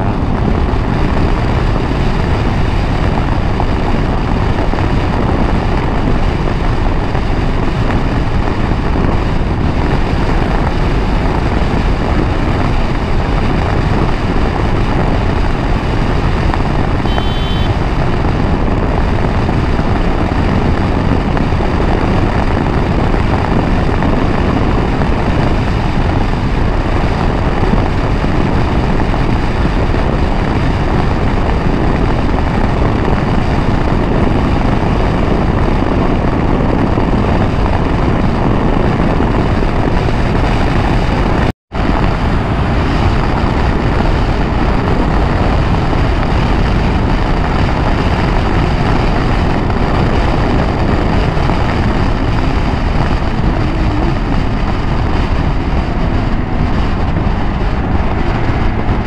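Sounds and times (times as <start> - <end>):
motorcycle engine and road noise: 0.0 - 59.0
wind on microphone: 0.0 - 59.0
short high beep: 17.0 - 17.8.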